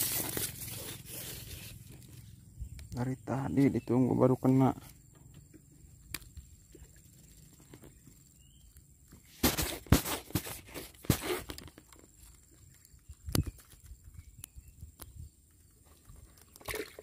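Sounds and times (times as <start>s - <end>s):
handling rustles: 0.0s - 2.3s, 9.2s - 12.5s.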